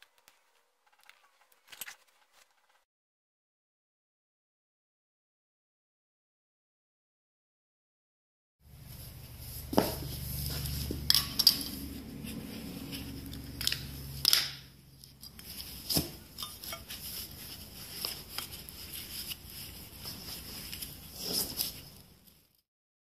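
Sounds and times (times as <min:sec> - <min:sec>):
metallic clinks and knocks: 0:11.0 - 0:11.9.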